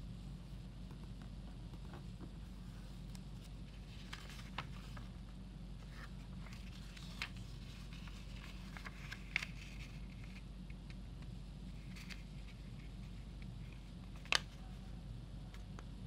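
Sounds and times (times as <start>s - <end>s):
steady low hum: 0.0s - 16.0s
paper rustling and crinkling: 1.9s - 10.5s, 11.7s - 14.9s.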